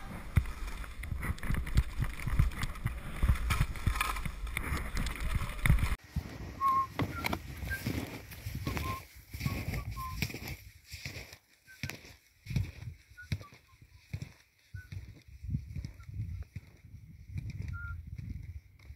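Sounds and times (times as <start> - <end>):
wind buffeting microphone: 0.0 - 10.5, 14.8 - 18.9.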